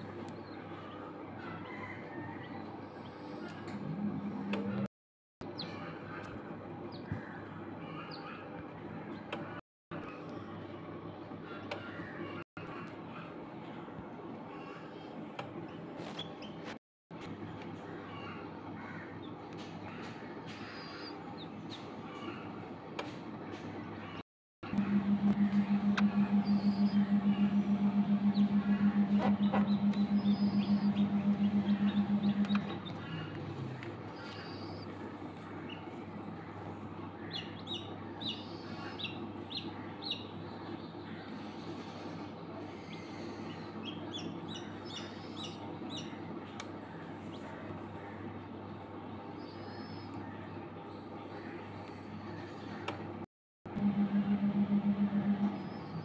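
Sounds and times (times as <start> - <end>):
incubator humming: 3.5 - 4.9, 24.0 - 56.0
chick peeping: 24.8 - 33.4, 37.2 - 40.3, 43.6 - 47.5.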